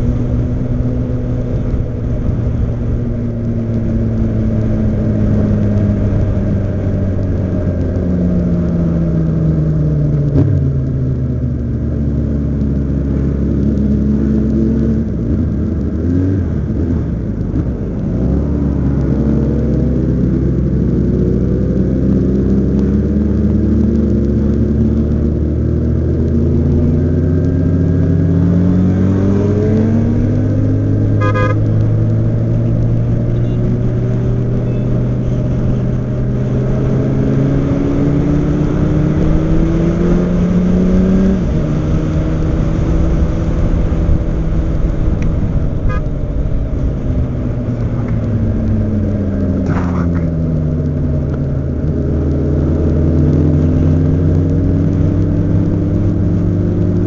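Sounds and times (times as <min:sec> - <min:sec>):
motorcycle engine accelerating: 0:00.0 - 0:57.0
short beep: 0:31.2 - 0:31.6.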